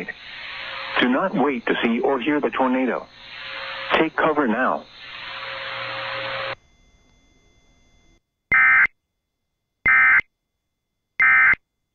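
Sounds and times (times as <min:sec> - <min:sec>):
receiver hiss: 0:00.0 - 0:08.1
buzzy data tone bursts: 0:00.0 - 0:09.0.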